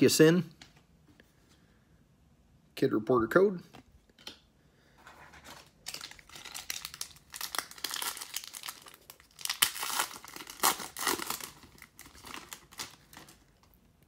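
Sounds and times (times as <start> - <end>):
foil wrapper crinkling and tearing: 5.6 - 13.8.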